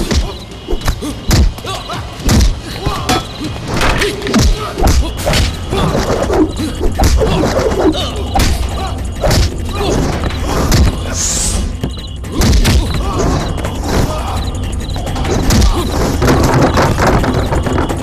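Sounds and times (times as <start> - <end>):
loud action music: 0.0 - 18.0
punch and body-hit thuds: 2.2 - 2.6.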